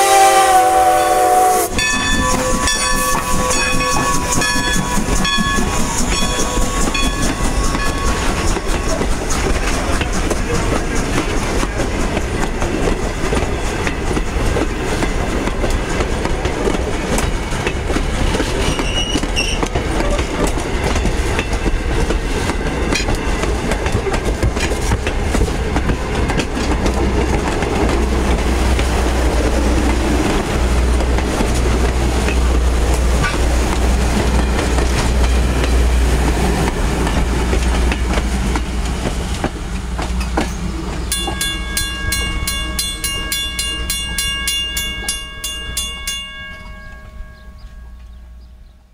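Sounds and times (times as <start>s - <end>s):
train wheels clicking over rail joints: 1.7s - 47.0s
rapid ringing bell: 1.8s - 9.4s, 41.1s - 48.2s.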